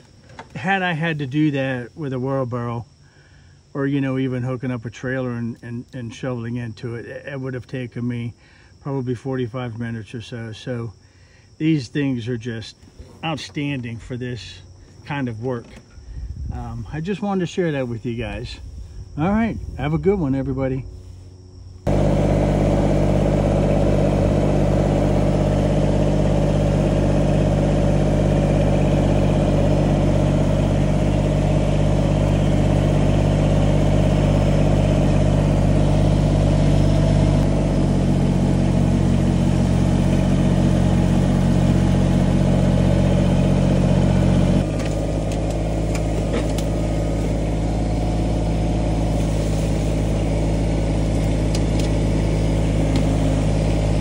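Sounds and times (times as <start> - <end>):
tractor diesel engine running: 21.8 - 54.0.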